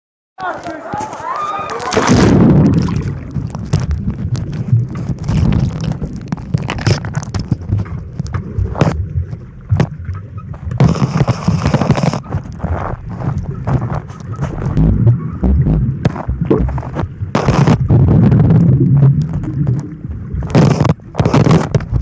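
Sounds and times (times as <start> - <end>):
splash into pool water: 1.1 - 3.4
bubbles: 1.8 - 22.0
muffled underwater rumble: 2.0 - 22.0.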